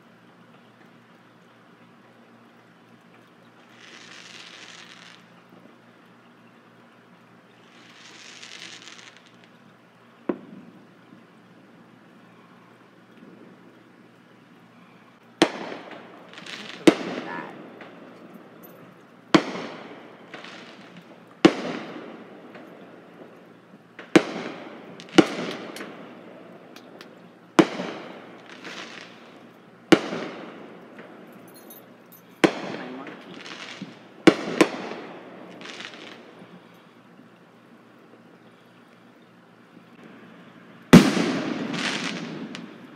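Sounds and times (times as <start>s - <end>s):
fireworks bangs: 3.6s - 5.4s, 7.6s - 9.6s, 10.2s - 11.3s, 15.4s - 36.7s, 40.9s - 42.9s.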